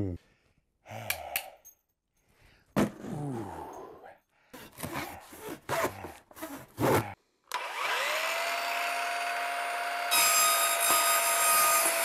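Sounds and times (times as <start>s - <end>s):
electric motor whining: 7.5s - 10.2s.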